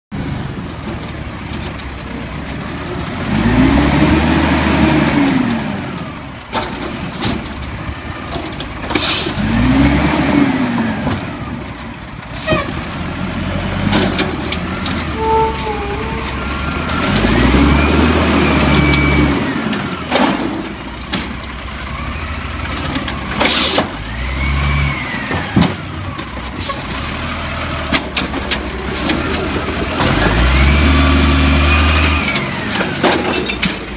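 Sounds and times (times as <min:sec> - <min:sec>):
garbage truck diesel engine revving: 0:02.5 - 0:33.9
air-brake hisses: 0:08.9 - 0:09.4.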